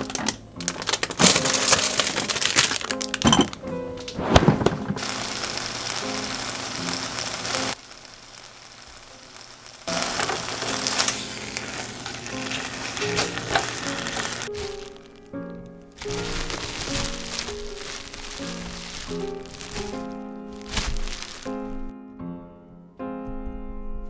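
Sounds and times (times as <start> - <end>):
meat sizzling in a pan: 5.0 - 15.4, 16.0 - 21.9.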